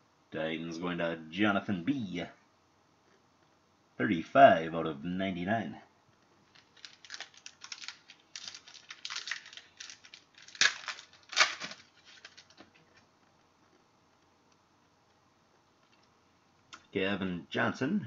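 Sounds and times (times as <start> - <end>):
trading cards crinkling and rustling: 6.4 - 13.1.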